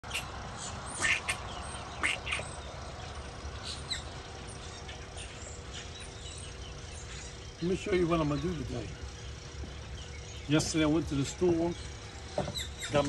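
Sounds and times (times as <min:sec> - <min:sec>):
ducks quacking: 0:00.0 - 0:02.6
low steady background noise: 0:00.0 - 0:13.0.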